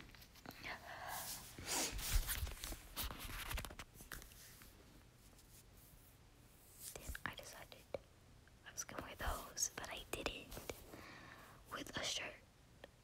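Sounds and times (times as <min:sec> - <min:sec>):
rustling and shuffling: 0:00.0 - 0:08.0, 0:09.0 - 0:11.0.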